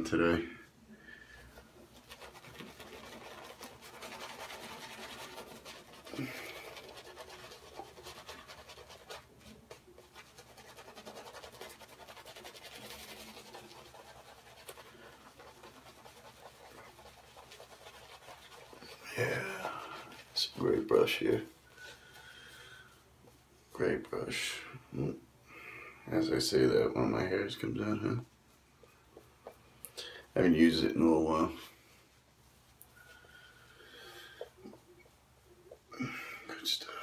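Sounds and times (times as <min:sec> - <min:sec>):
shaving brush scrubbing lather: 0:01.9 - 0:22.2.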